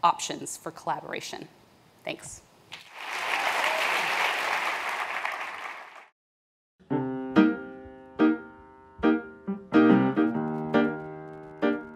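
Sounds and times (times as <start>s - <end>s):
audience applauding: 2.7s - 6.1s
piano chords ringing: 6.8s - 11.9s.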